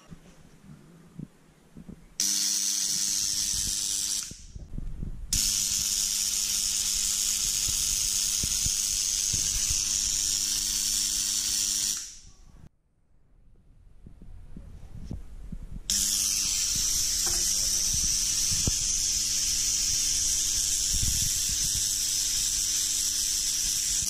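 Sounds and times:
tesla coil spark hiss: 2.2s - 4.6s, 5.3s - 12.3s, 15.9s - 24.0s.

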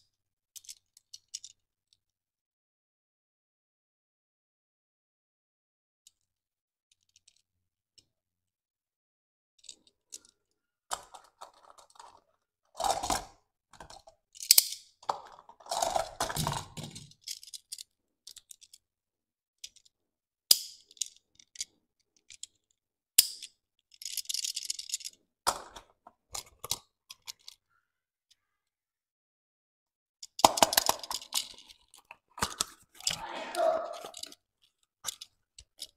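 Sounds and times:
toy car clicks and taps: 9.6s - 18.8s, 19.6s - 19.9s, 20.5s - 27.6s, 30.2s - 33.2s, 34.0s - 35.9s.

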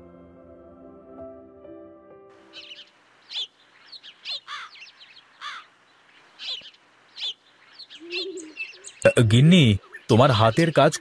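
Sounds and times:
birds chirping: 2.4s - 11.0s.

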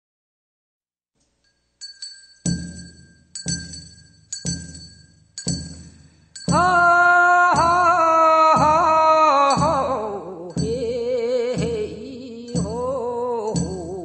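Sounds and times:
hand bell ringing: 1.4s - 8.0s
solo voice singing: 6.5s - 14.0s.

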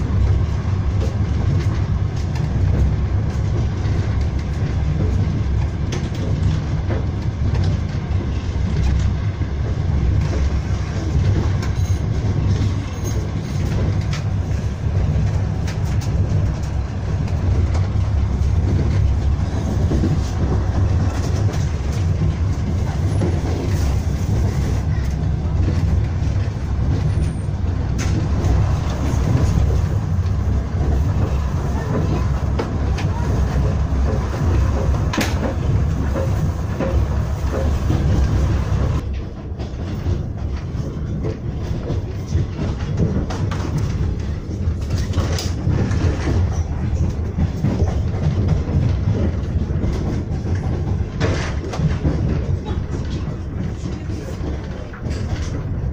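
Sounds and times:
train rumbling on rails: 0.0s - 55.9s.

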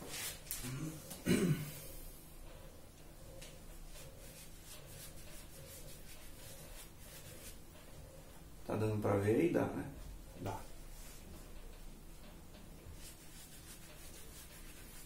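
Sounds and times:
paintbrush scrubbing on cloth: 3.8s - 7.7s, 12.9s - 15.0s.

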